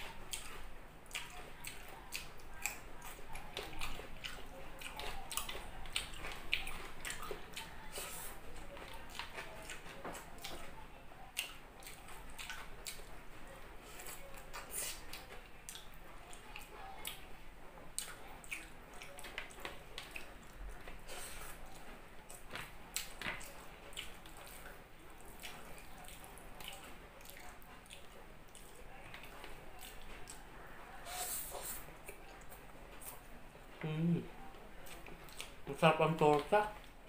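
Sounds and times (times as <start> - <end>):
wet chewing and lip smacking: 0.3 - 10.7, 11.3 - 13.1, 13.8 - 17.3, 18.0 - 30.5, 34.8 - 35.6.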